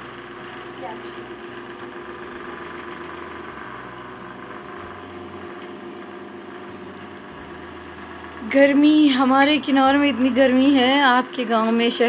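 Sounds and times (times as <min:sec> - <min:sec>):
electric fan humming: 0:00.0 - 0:12.0.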